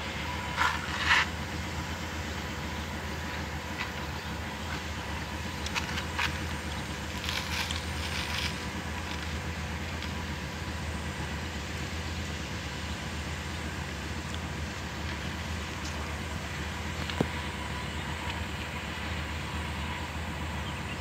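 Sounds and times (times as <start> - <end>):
excavator engine running: 0.0 - 21.0
hand scrapes and rubs: 0.4 - 1.4, 7.2 - 9.4.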